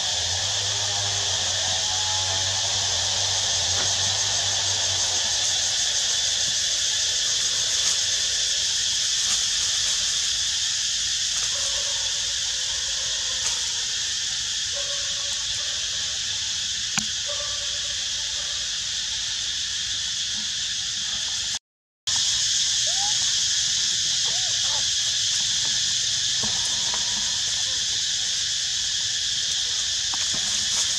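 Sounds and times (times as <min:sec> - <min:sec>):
cicada chorus drone: 0:00.0 - 0:30.9.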